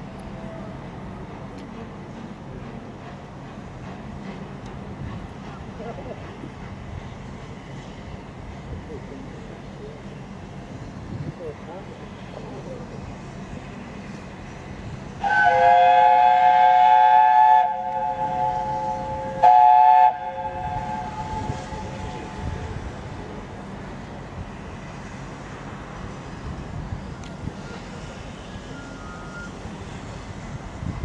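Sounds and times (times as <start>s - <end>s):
train rumbling: 0.0s - 31.0s
steam whistle blasts: 15.2s - 22.0s, 28.7s - 29.6s.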